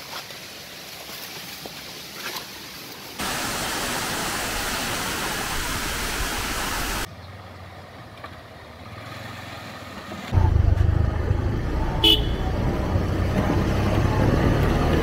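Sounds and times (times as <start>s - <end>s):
truck engine rumble: 9.9s - 15.0s.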